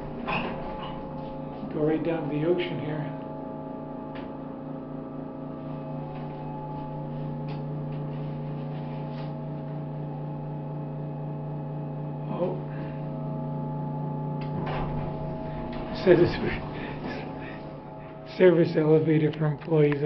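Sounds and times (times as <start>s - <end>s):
elevator hum: 0.0s - 20.0s
loud wavering sound: 14.6s - 19.7s.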